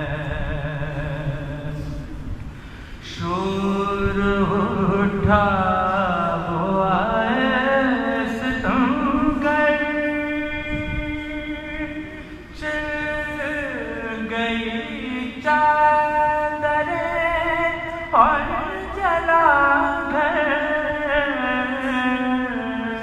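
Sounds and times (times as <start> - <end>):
man singing a lament: 0.0 - 2.2, 3.0 - 23.0.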